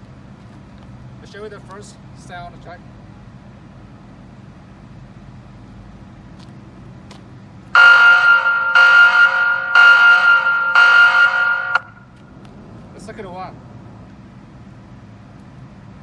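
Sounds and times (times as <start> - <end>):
pulsing electronic alarm tone: 7.8 - 12.0.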